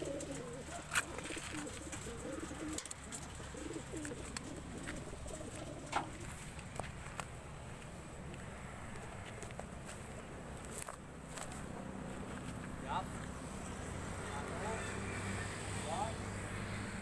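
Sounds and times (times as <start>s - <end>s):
pigeons cooing: 0.0s - 9.3s, 13.0s - 17.0s.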